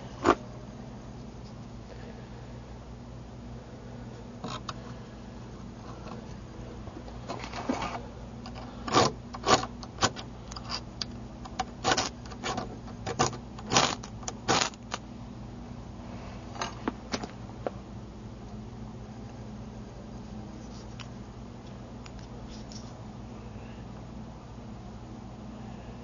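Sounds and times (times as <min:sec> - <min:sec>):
striker scraping flint: 0:11.8 - 0:15.0.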